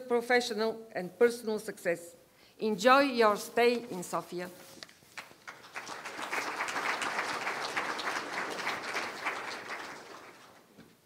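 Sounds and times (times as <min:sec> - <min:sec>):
audience applauding: 0:05.1 - 0:10.8.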